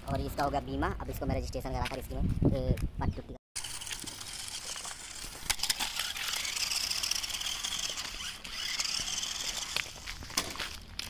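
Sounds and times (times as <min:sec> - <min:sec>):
toy truck motor whining: 0:03.6 - 0:10.2
grit clicking under tyres: 0:03.6 - 0:11.0.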